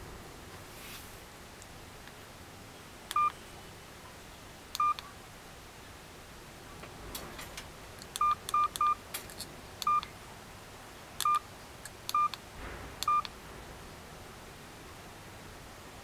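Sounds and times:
phone key-tone beeps: 3.2 - 3.4, 4.8 - 5.0, 8.2 - 9.0, 9.8 - 10.0, 11.2 - 11.4, 12.1 - 12.4, 13.0 - 13.3.

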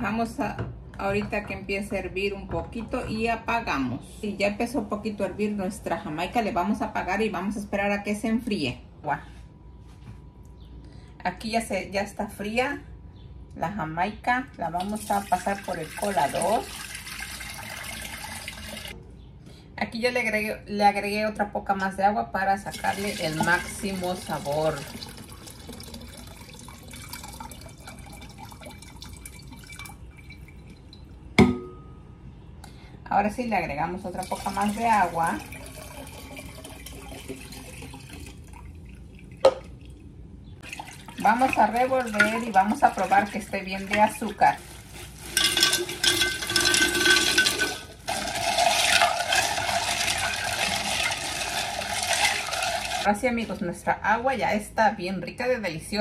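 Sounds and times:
water swirling in pitcher: 14.8 - 19.0, 22.7 - 31.0, 34.1 - 40.0, 40.6 - 53.1
liquid trickling and dripping: 22.8 - 31.3, 34.2 - 43.5
ice clinking against glass: 45.3 - 52.5.

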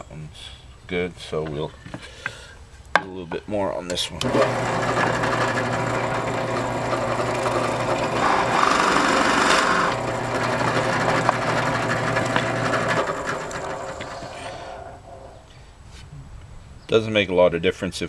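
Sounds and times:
drill bit cutting into wood: 4.2 - 15.0
drill press motor running: 4.2 - 15.2.

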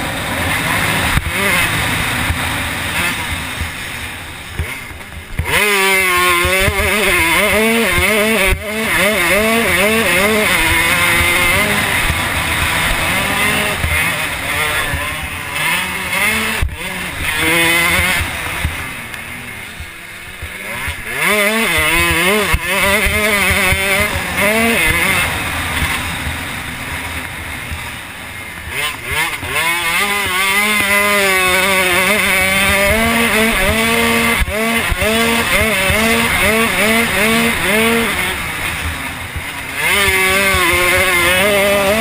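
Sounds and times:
motocross bike engine revving: 0.0 - 42.0.

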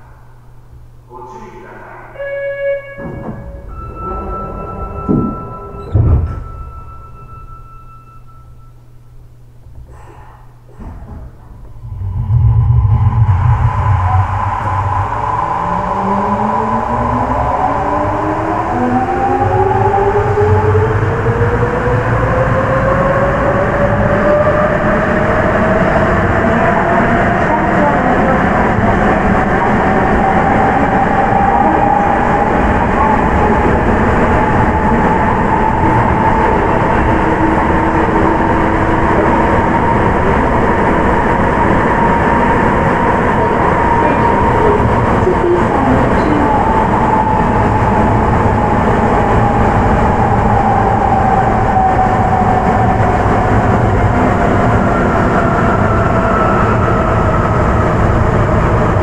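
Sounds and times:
higher whine: 0.0 - 59.0
train rolling rumble: 0.0 - 59.0.

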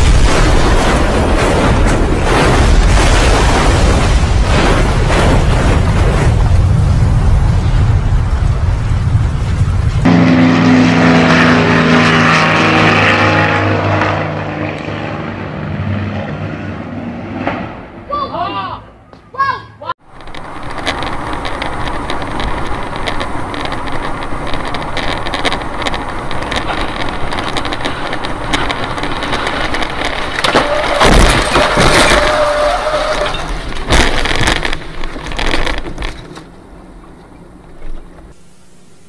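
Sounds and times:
loud crashing bangs: 0.0 - 12.4, 25.0 - 35.6
car road and engine noise: 6.9 - 18.2, 19.9 - 38.8.

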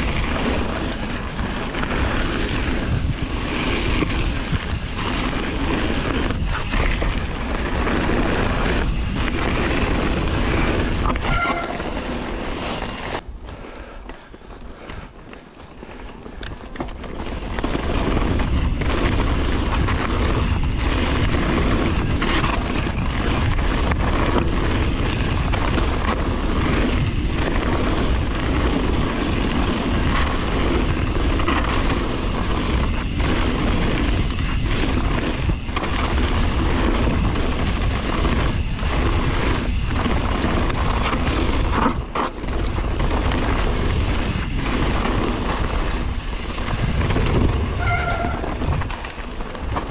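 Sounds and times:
wind buffeting microphone: 0.0 - 13.5, 16.4 - 49.9
bike tyres on gravel: 0.0 - 49.9
bike clattering: 14.1 - 49.9.

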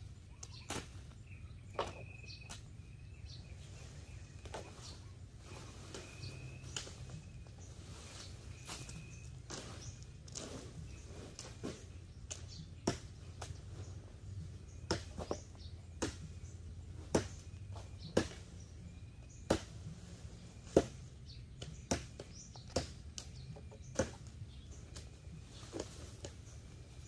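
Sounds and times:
machete chopping branches: 0.4 - 2.7, 5.9 - 7.4, 8.5 - 13.8, 14.7 - 26.6.

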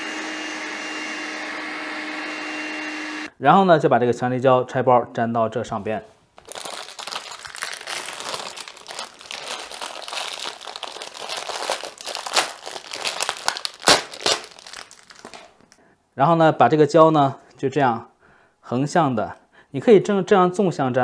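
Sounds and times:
plastic bag crinkling: 6.4 - 15.8.

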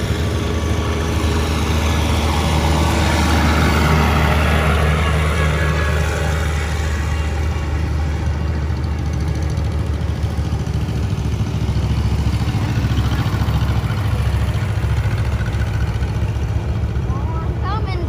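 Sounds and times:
tractor engine running: 0.0 - 18.0.

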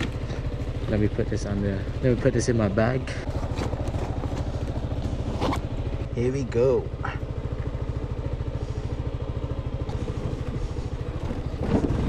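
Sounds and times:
scooter engine idling: 0.0 - 12.0.

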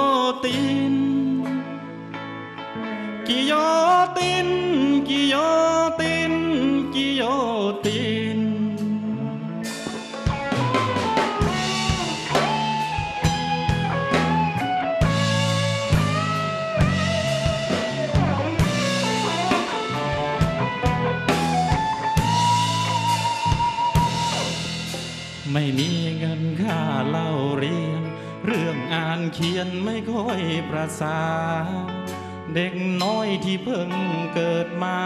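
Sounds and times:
bass line: 0.0 - 34.8
electric guitar lead melody: 0.0 - 35.0
drum kit beat: 9.6 - 27.2.

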